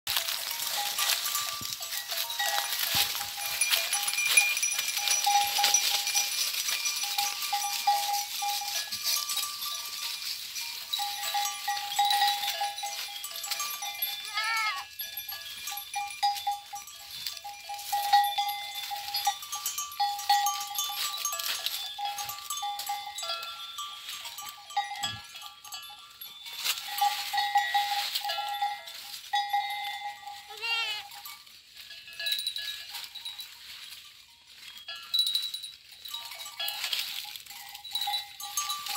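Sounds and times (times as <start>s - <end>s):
leaves and twigs rustling: 0.1s - 38.9s.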